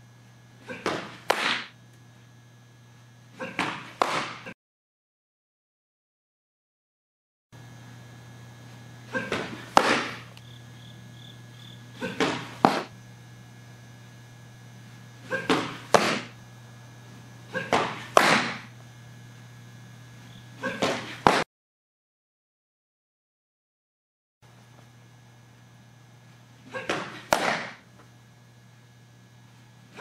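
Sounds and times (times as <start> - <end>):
steady low hum: 0.0 - 4.6, 7.6 - 21.4, 24.4 - 30.0
softball pitch release: 0.8 - 1.7, 9.3 - 10.5
ball popping into mitt: 12.2 - 12.9, 26.9 - 27.8.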